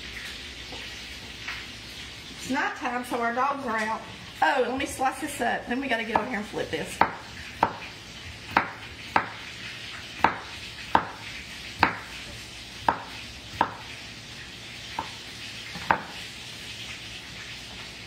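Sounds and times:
meat sizzling in a pan: 6.1 - 18.0.

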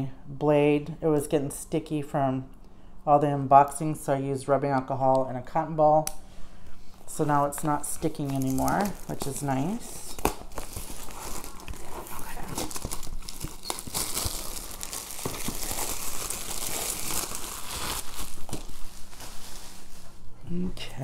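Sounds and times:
plastic wrap crinkling and tearing: 7.5 - 20.3.

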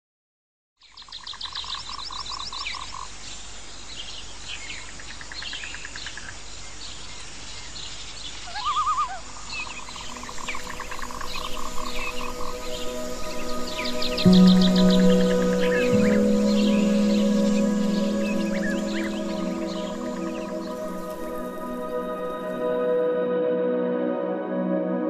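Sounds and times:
rapid pulsed animal calls: 8.4 - 22.7
held musical tones: 10.0 - 25.0.

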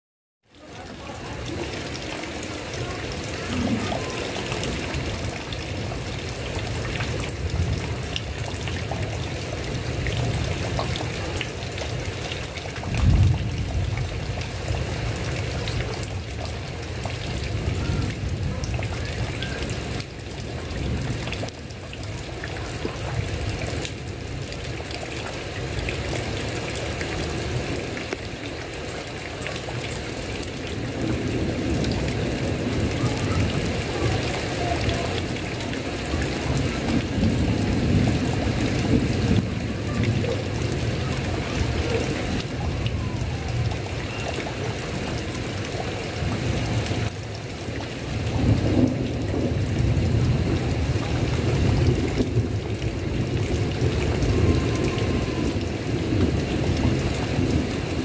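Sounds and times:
heavy rain: 0.4 - 58.0
thunder rumbling: 1.4 - 11.4, 12.8 - 21.5, 48.2 - 58.0.

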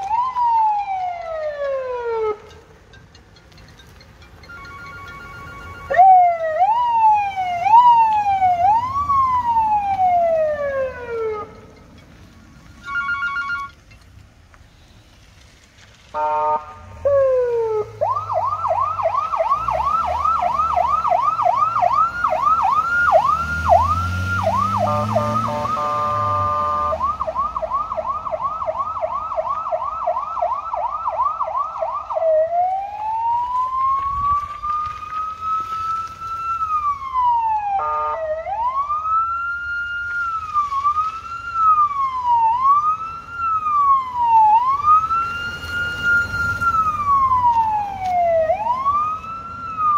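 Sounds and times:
electronic police siren: 0.0 - 2.7, 4.4 - 11.8, 12.7 - 13.8, 16.2 - 49.9
car engine revving: 16.7 - 27.4.

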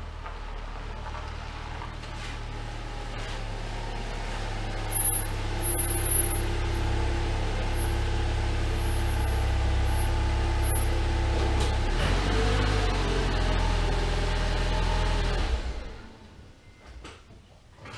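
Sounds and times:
car engine running: 0.0 - 13.3
short high squeaks: 4.9 - 6.5, 8.8 - 11.0.

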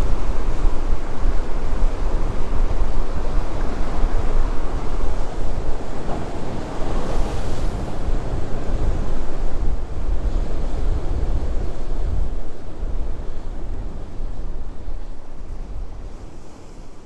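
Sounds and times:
ocean surf: 0.0 - 17.0
wind buffeting microphone: 0.0 - 17.0.

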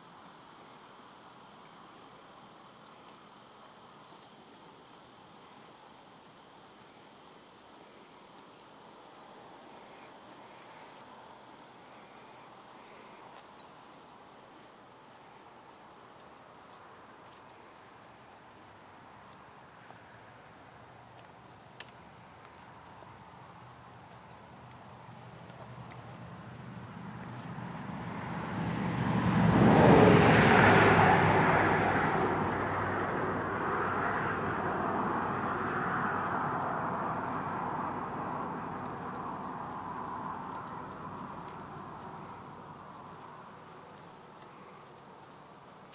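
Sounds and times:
passing vehicle engine: 25.8 - 43.7.

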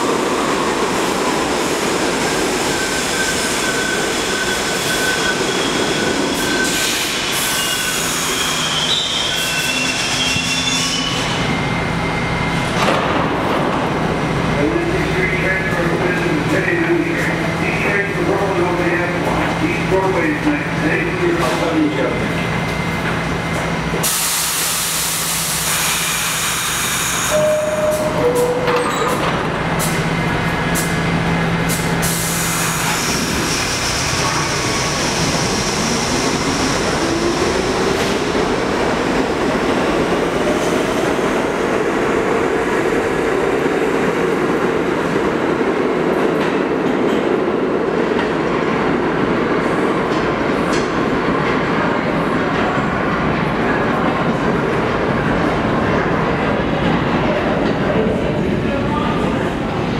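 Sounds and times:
train doors clunking shut: 27.5 - 30.0.

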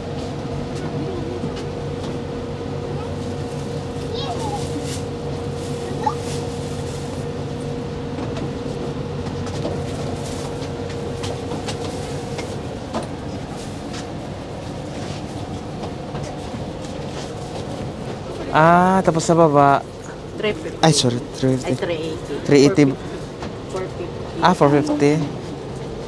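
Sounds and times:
ferry engines droning: 0.0 - 26.0.

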